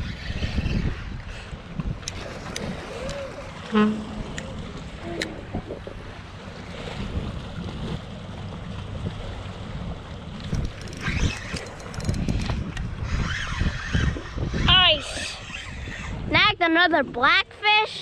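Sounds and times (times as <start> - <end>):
wind buffeting microphone: 0.0 - 17.4
fishing reel clicking: 10.5 - 14.2.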